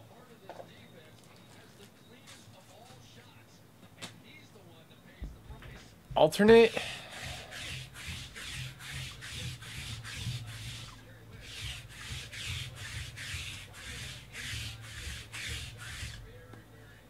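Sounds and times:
lint roller rasping over fabric: 6.5s - 16.4s.

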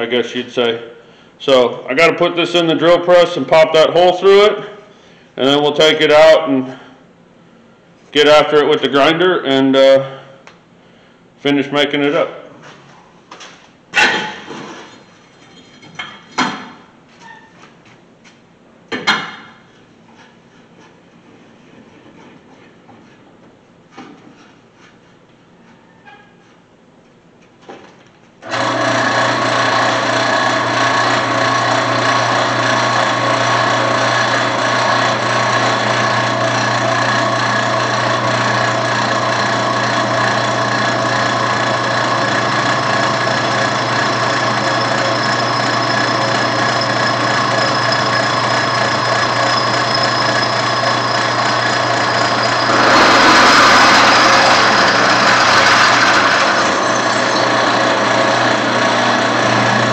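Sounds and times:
drill press motor hum: 28.4s - 59.9s
drill bit cutting metal: 28.5s - 59.9s.

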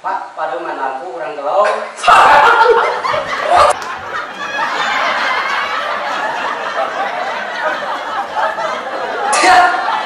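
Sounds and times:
people laughing: 2.1s - 10.0s.

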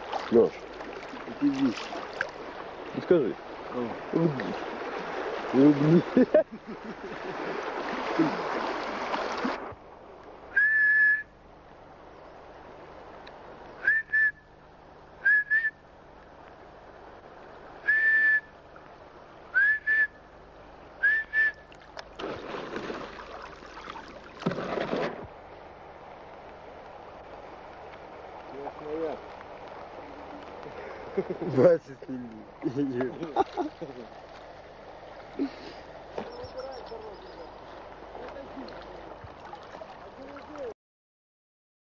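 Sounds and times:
rushing water: 0.0s - 40.8s
short whistled notes: 10.6s - 11.3s, 13.8s - 14.4s, 17.8s - 18.5s, 19.6s - 20.2s, 21.0s - 21.6s.

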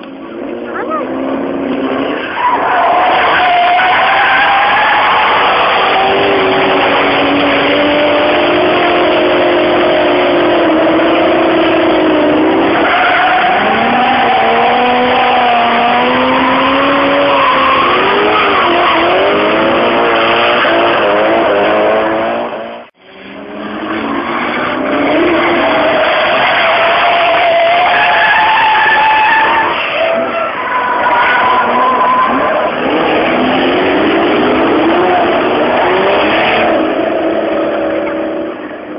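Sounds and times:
car engines revving: 0.0s - 38.9s
tyres squealing: 2.1s - 9.0s, 11.3s - 19.7s, 24.1s - 35.3s.

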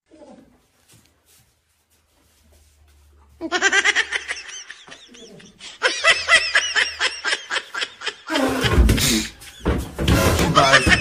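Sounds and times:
person laughing: 3.4s - 9.6s, 10.4s - 11.0s.

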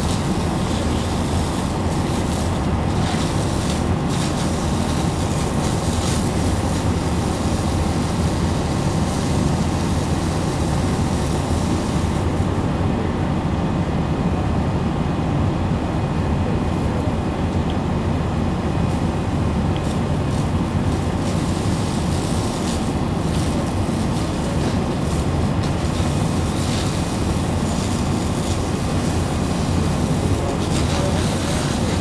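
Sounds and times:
fire engines rumbling: 0.0s - 32.0s
large fire burning: 0.0s - 32.0s.

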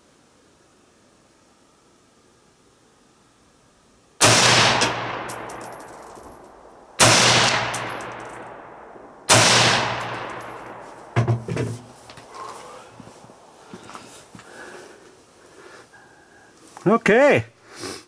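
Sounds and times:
rifle shots with echo: 4.2s - 11.2s.

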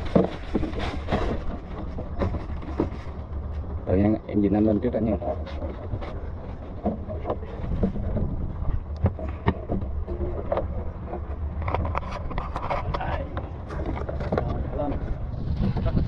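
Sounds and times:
water lapping against boat hull: 0.0s - 4.2s, 4.8s - 16.0s
wind buffeting microphone: 0.0s - 16.0s.

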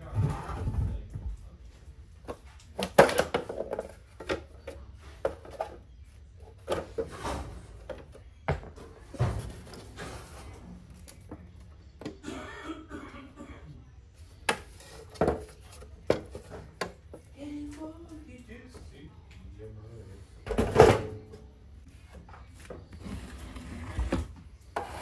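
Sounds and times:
plastic cover knocking and scraping: 14.5s - 17.2s.

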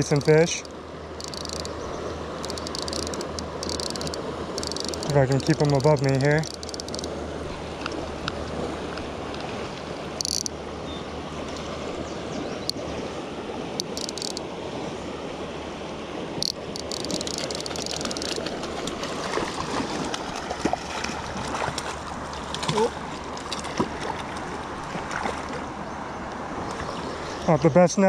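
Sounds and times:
river water rushing: 0.0s - 28.0s
short sharp clicks and knocks: 2.4s - 7.1s.

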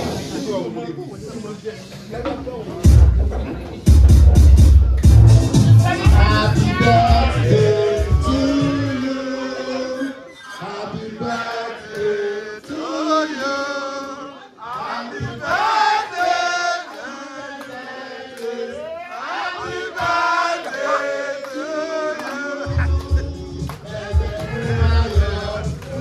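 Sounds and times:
voices singing along: 5.4s - 26.0s.

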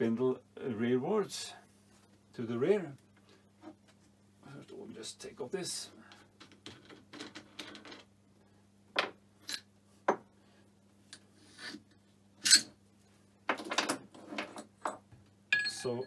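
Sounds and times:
small steel parts clinking: 12.4s - 12.7s.

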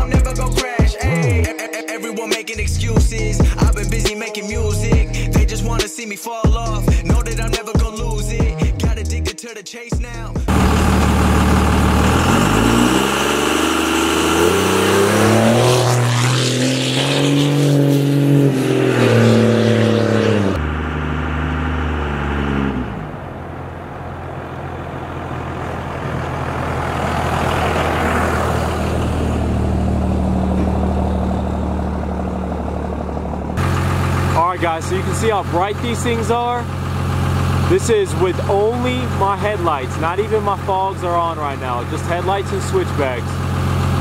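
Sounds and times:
diesel engine revving and idling: 0.0s - 1.6s, 2.5s - 5.9s, 6.5s - 9.3s, 10.0s - 44.0s.

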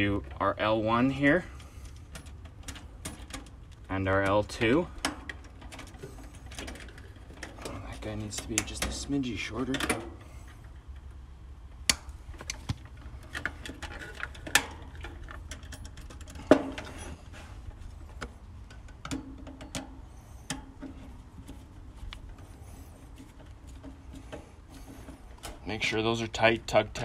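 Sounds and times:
tools clicking and snapping on wire: 1.6s - 11.2s.

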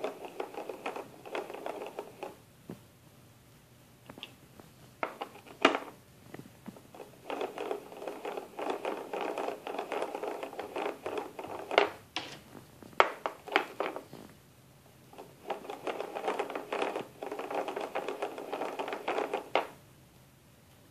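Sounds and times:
plastic gears clicking and rattling: 0.0s - 2.4s, 7.0s - 12.0s, 15.2s - 19.8s.

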